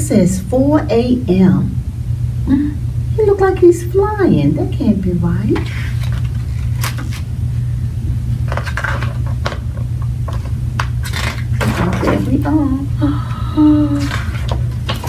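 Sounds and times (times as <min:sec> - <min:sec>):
steady low hum: 0:00.0 - 0:15.0
book pages turning: 0:05.6 - 0:07.3, 0:08.3 - 0:12.3, 0:14.0 - 0:15.0.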